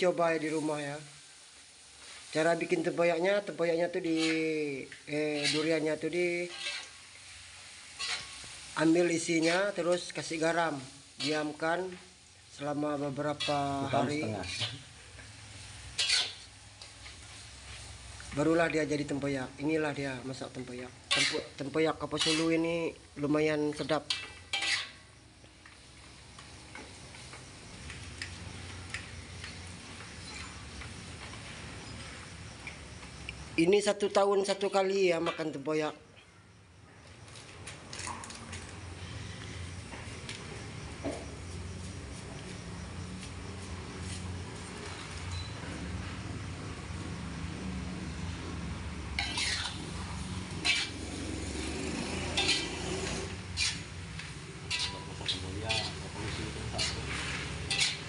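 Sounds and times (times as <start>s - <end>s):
metal spatula scraping a wok: 2.0s - 10.4s, 11.0s - 12.1s, 13.1s - 25.2s, 28.2s - 32.3s, 43.8s - 46.0s, 48.0s - 58.0s.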